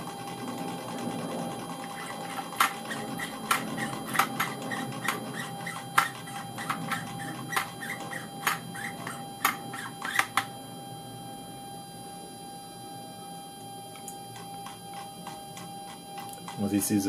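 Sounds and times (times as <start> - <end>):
stepper motor clicking: 0.0 - 10.5, 14.0 - 16.8.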